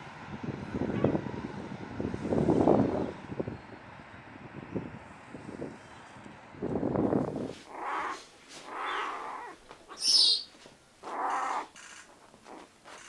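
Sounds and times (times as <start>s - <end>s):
puma cubs mewing: 7.6s - 13.0s.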